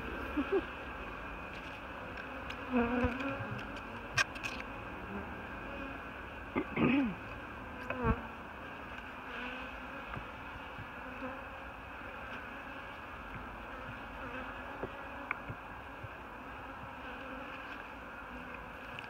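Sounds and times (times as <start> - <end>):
honeybees humming: 0.0 - 19.0.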